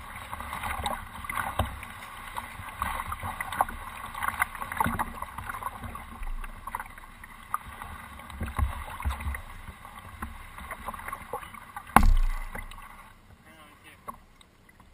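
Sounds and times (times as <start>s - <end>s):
water lapping against canoe hull: 0.0s - 14.9s
small knocks on hull: 10.2s - 13.0s
loud thump on hull: 11.9s - 12.8s.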